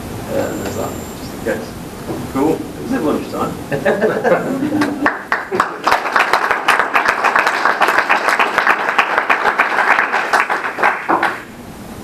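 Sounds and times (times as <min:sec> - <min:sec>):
audience applauding: 0:04.7 - 0:11.5.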